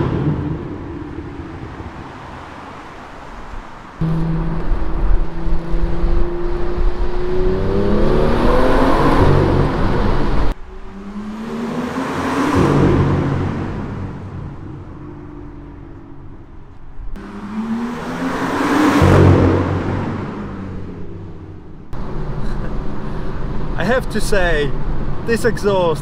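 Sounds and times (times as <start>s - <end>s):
car accelerating hard: 0.0s - 15.9s, 17.2s - 24.0s
car passing by: 0.0s - 16.0s, 17.2s - 21.4s.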